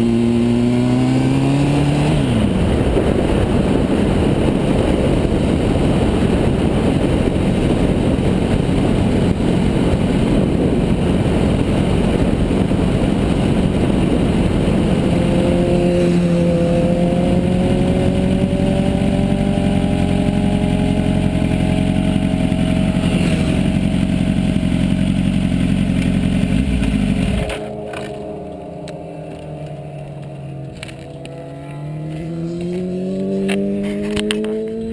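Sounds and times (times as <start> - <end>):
motorcycle engine: 0.0 - 34.9
wind rush over microphone: 0.6 - 23.8.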